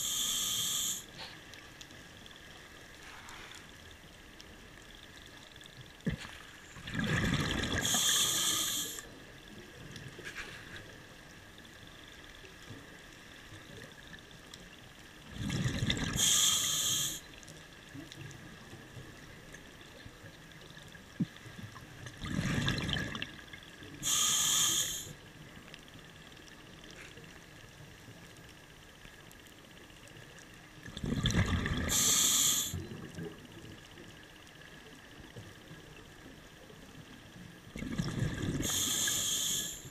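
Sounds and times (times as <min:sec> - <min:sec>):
regulator demand valve hiss: 0:00.0 - 0:01.1, 0:07.8 - 0:09.0, 0:16.2 - 0:17.2, 0:24.0 - 0:25.1, 0:31.9 - 0:32.8, 0:38.6 - 0:39.9
steady underwater hiss: 0:00.0 - 0:39.9
exhaled bubbles rushing: 0:06.8 - 0:08.0, 0:15.3 - 0:16.2, 0:22.2 - 0:23.4, 0:30.9 - 0:32.0, 0:37.8 - 0:38.7.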